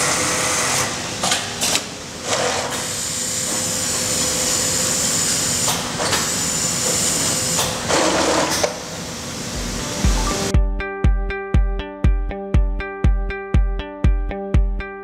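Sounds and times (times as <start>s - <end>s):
sewing machine running: 2.2s - 8.9s.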